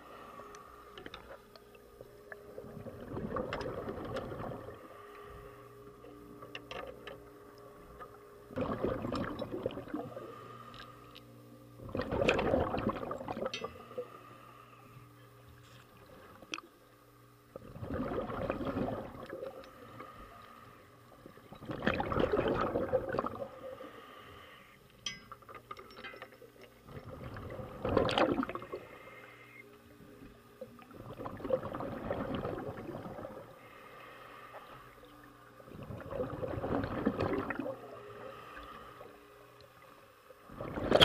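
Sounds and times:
exhaled bubbles rushing underwater: 2.3s - 4.9s, 7.9s - 10.4s, 11.8s - 13.5s, 17.5s - 19.6s, 21.1s - 23.8s, 26.8s - 28.8s, 30.8s - 33.6s, 35.6s - 38.2s, 40.4s - 41.0s.

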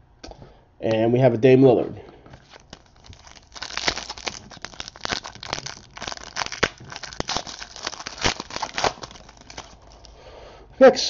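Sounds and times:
foil wrapper crinkling and tearing: 2.4s - 10.2s.

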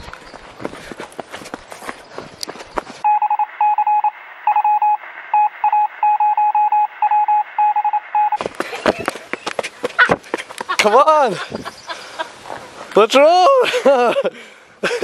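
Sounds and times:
running footsteps on dirt: 0.0s - 3.0s, 8.3s - 11.7s
high electronic beeping: 3.0s - 8.4s.

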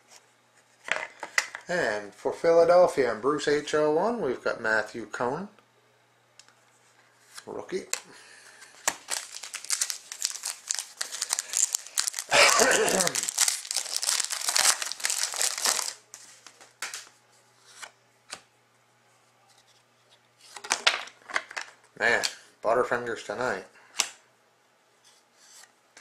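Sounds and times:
foil wrapper tearing and crinkling: 8.8s - 16.1s.

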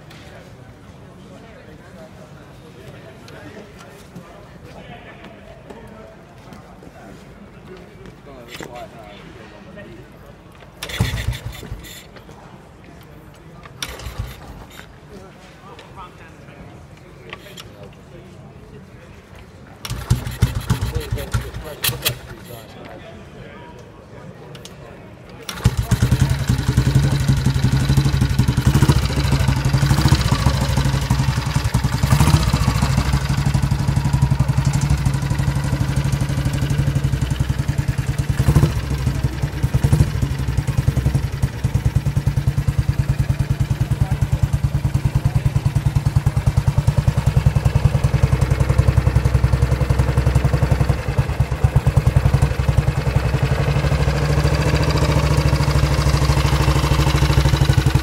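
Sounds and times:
motorcycle engine running: 10.8s - 12.0s, 13.8s - 14.8s, 19.9s - 22.3s, 25.5s - 58.0s.

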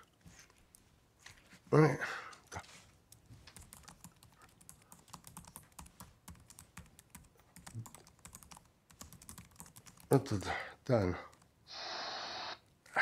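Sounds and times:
computer keyboard typing: 3.1s - 10.5s.

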